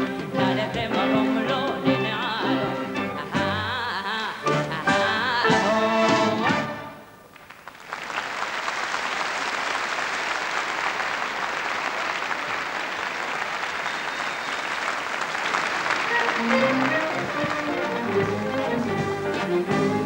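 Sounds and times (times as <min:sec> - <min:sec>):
woman singing with orchestra: 0:00.0 - 0:07.0
audience applause: 0:07.4 - 0:20.0.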